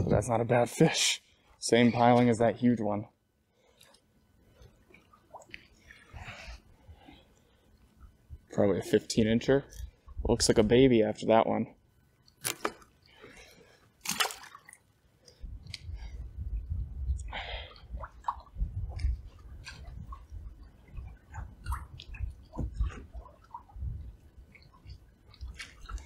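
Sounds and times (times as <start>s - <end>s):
wind buffeting microphone: 15.4s - 26.0s.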